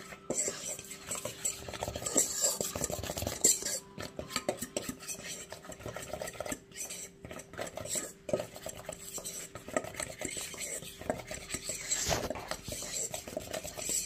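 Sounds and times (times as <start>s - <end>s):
fork clinking against bowl: 0.0s - 6.6s
fork scraping metal bowl: 0.0s - 14.0s.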